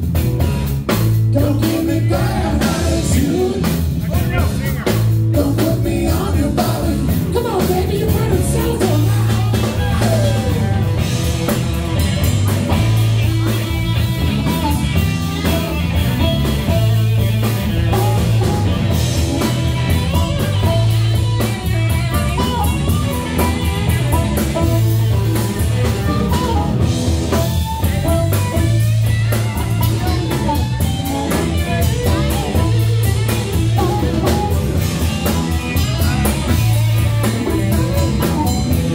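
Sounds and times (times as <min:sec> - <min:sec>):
blues band playing: 0:00.0 - 0:38.9
harmonica: 0:09.0 - 0:38.9.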